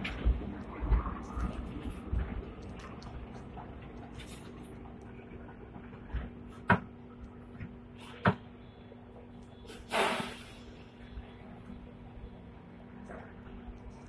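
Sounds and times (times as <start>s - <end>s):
tram cab low hum: 0.0s - 14.0s
burst of air hiss: 9.7s - 10.8s.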